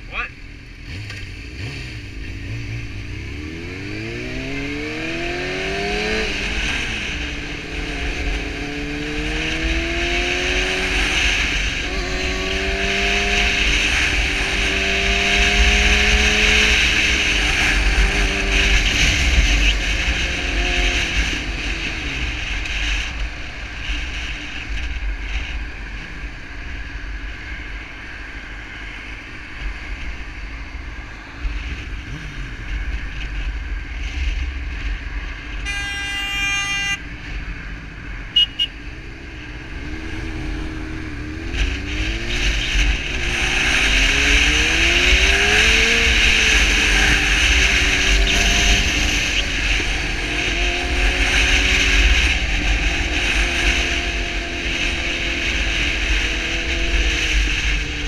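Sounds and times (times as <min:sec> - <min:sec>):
motorcycle engine accelerating: 0:00.0 - 0:27.6, 0:28.9 - 0:35.6, 0:37.2 - 0:58.0
wind rush on microphone: 0:39.0 - 0:58.0.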